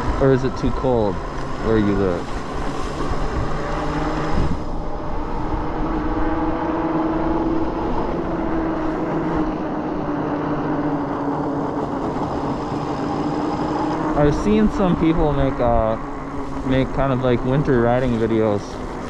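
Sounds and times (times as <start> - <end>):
wind rushing: 0.0 - 10.2
electric motor whine: 0.0 - 19.0
tire noise: 0.0 - 19.0.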